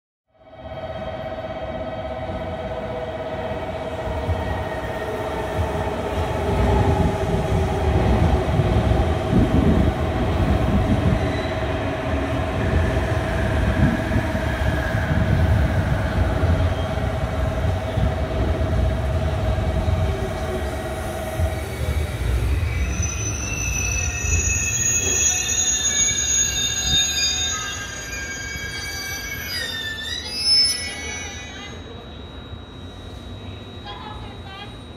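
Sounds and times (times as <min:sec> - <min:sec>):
train wheels rumbling on rails: 0:02.0 - 0:27.0.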